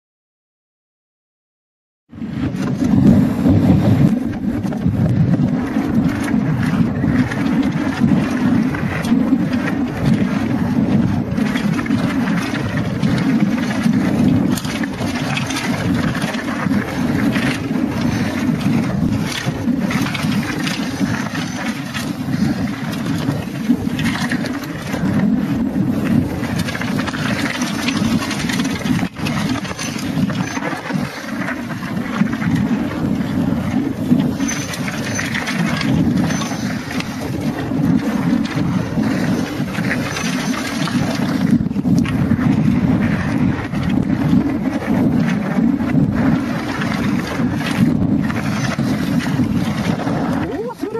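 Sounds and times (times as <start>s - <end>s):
wind rushing over microphone: 2.1s - 50.9s
bike rattling and knocking: 2.3s - 50.9s.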